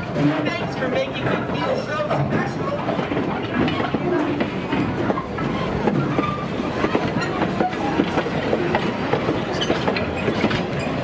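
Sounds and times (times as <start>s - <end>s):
wheels rumbling and clicking on track: 0.0s - 11.0s
wheel squeaks: 5.1s - 8.0s.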